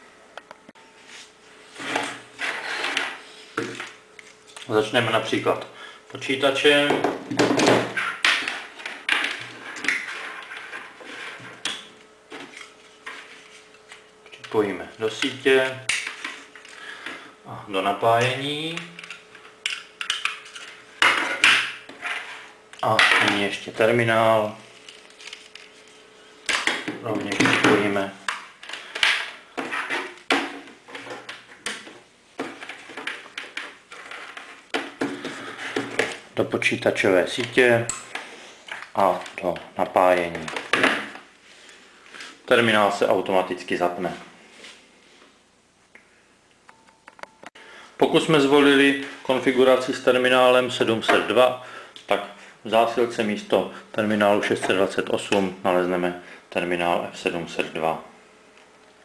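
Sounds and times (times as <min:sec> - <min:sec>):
cables rustling: 0:18.2 - 0:43.0.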